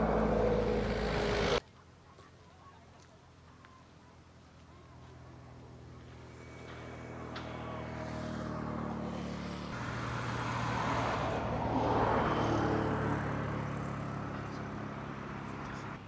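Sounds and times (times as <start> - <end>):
vehicle engine passing by: 0.0 - 1.6, 4.9 - 16.0.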